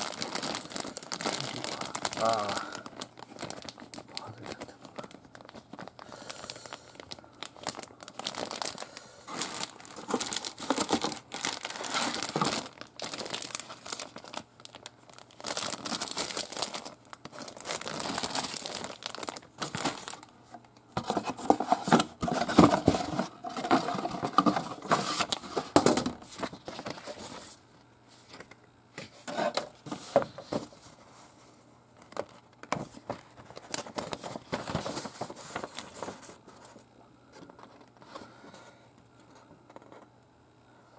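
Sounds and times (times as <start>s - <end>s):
plastic bags crinkling: 0.0s - 27.6s, 31.9s - 36.8s.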